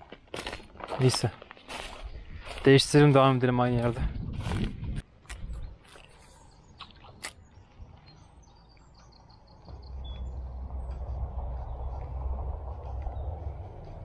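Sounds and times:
small birds chirping: 5.4s - 14.0s
low rumble: 9.3s - 14.0s.

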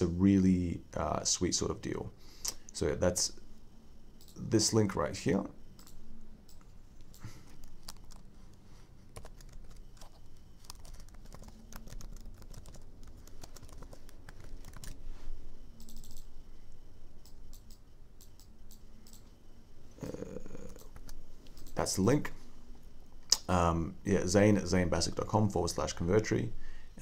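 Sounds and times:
typing on computer keyboard: 5.8s - 8.2s, 9.2s - 15.0s, 15.8s - 16.3s.

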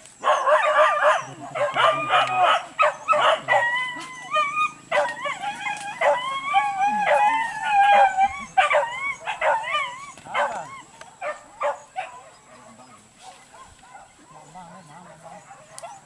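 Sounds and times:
dogs whining and yelping: 0.2s - 12.5s
dogs yapping: 0.2s - 16.0s.

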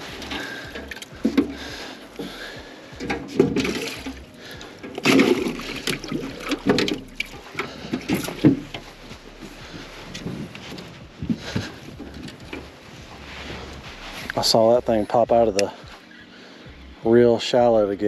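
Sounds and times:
water splashing in a tank: 3.1s - 4.2s, 4.9s - 8.6s.

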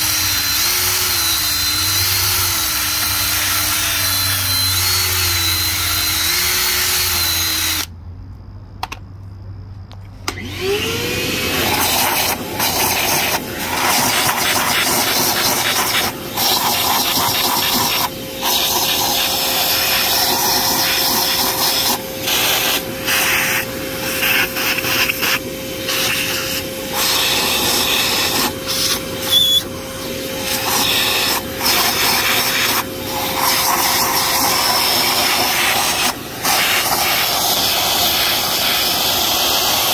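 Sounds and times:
rotary power tool whine: 0.0s - 8.0s, 10.2s - 39.9s
abrasive pad scrubbing metal: 11.5s - 39.9s.

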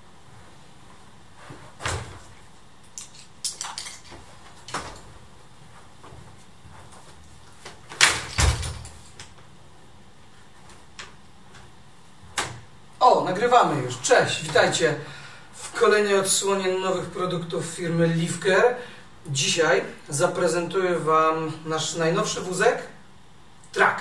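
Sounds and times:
wheelchair frame clicks and clunks: 1.8s - 5.2s.

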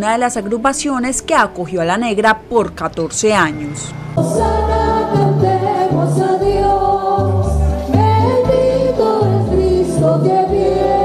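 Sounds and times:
bass line: 3.1s - 11.0s
women singing in harmony: 4.2s - 11.0s.

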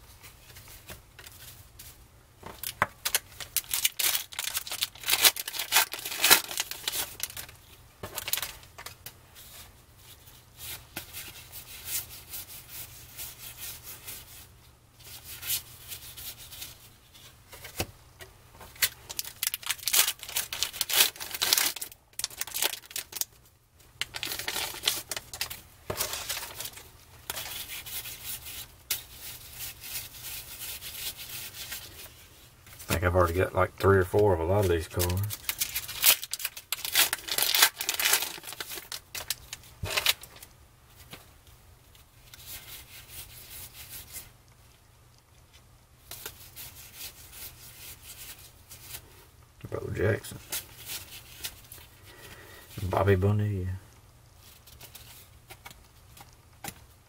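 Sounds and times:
cardboard cards rustling: 0.2s - 12.1s, 18.6s - 23.3s, 24.0s - 41.3s
plastic wrapper crinkling: 2.5s - 9.6s, 18.6s - 23.4s, 24.0s - 41.1s.

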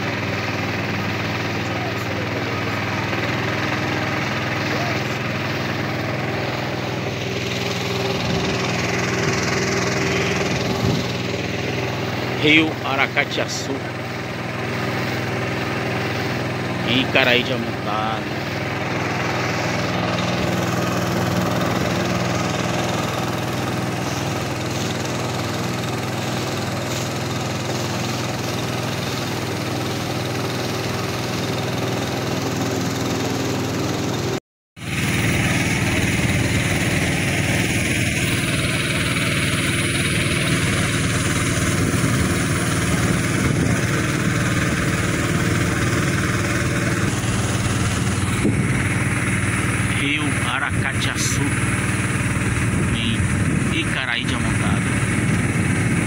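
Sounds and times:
boat motor running: 0.0s - 56.0s
water noise: 34.8s - 56.0s
wind noise: 48.3s - 48.9s, 52.5s - 53.8s, 54.8s - 56.0s.

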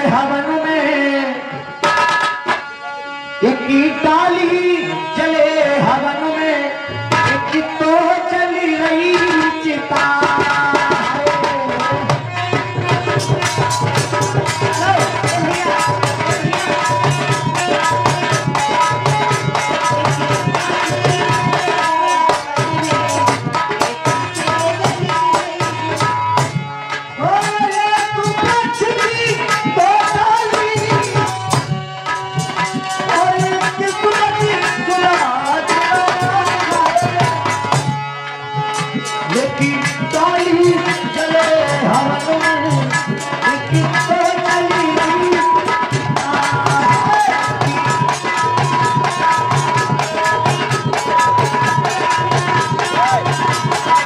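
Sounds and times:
hand drum fast rhythm: 10.0s - 38.0s, 38.6s - 54.0s.

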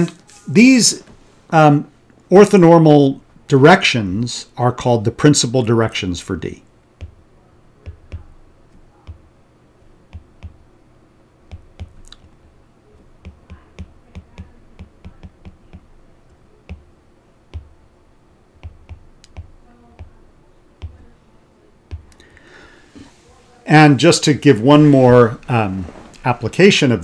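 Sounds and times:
stylus tapping on glass screen: 7.0s - 9.3s, 10.1s - 10.7s, 11.5s - 12.4s, 13.0s - 16.9s, 17.5s - 17.8s, 18.6s - 21.1s, 21.9s - 22.3s.

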